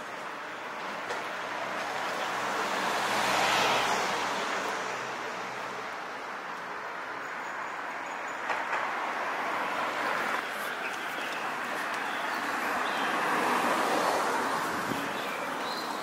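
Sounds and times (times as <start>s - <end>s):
car passing: 1.3s - 7.2s, 7.9s - 16.0s.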